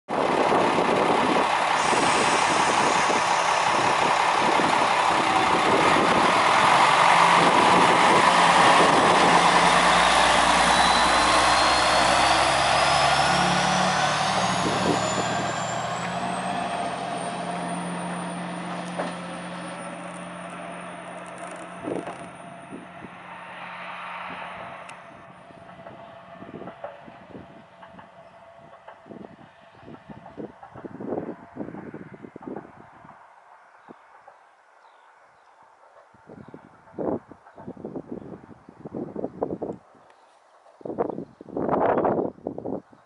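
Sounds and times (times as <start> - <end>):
diesel railcar engine: 0.1 - 43.0
rising whine: 0.3 - 27.4.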